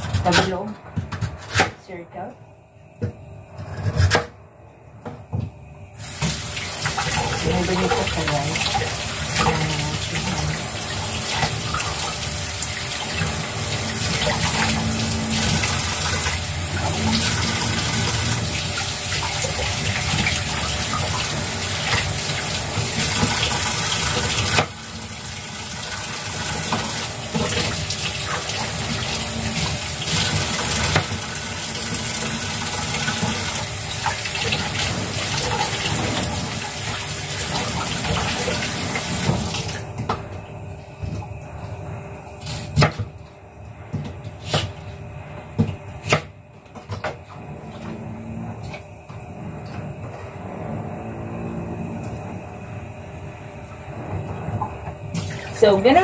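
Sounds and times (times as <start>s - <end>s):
tap water running into sink: 6.0s - 40.2s.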